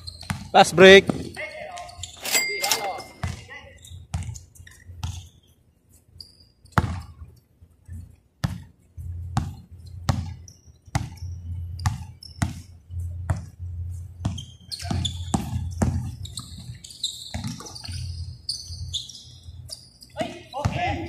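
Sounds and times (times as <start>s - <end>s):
basketball bouncing on court: 0.1s - 1.4s, 3.2s - 4.4s, 6.7s - 7.2s, 8.4s - 13.6s, 14.2s - 18.0s, 20.6s - 21.0s
short high squeaks: 1.2s - 6.8s, 14.3s - 20.2s.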